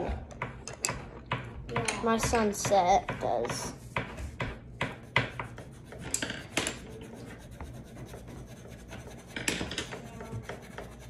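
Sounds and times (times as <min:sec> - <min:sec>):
pencil scratching on paper: 0:03.7 - 0:11.0.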